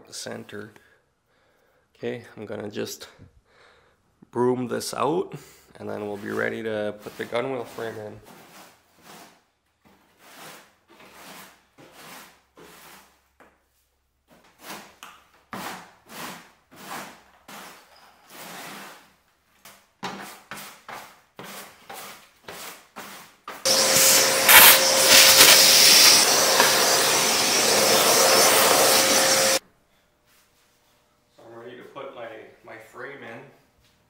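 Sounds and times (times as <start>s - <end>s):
broom sweeping debris: 23.7s - 29.6s
machine humming loudly: 23.7s - 29.6s.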